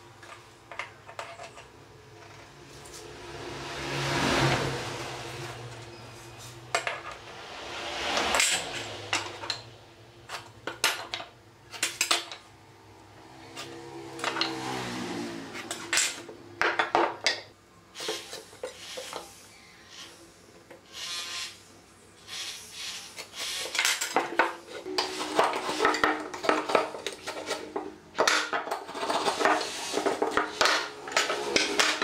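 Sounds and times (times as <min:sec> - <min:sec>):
metal tools clinking on wood: 0:23.7 - 0:32.0.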